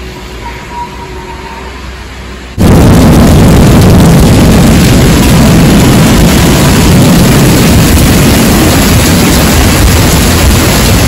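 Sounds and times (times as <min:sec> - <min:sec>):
heavy rain rushing: 0:01.8 - 0:11.0
wind buffeting microphone: 0:02.6 - 0:11.0.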